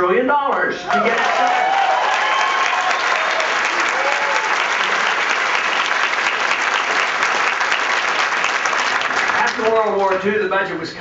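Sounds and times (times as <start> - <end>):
voices shouting and cheering: 0.8 - 4.8
audience applauding: 0.9 - 10.2.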